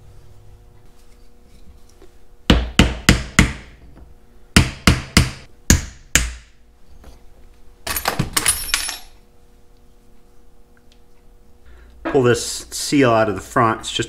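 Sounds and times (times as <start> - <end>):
hammer striking wooden block: 2.5 - 3.8, 4.6 - 6.5.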